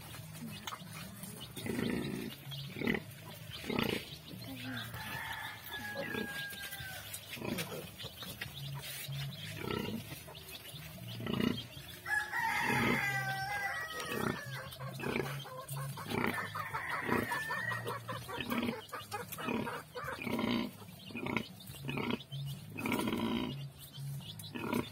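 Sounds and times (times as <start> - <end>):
sow grunting: 1.5 - 4.4
rooster crowing: 4.8 - 7.0, 12.0 - 14.7, 16.3 - 17.9.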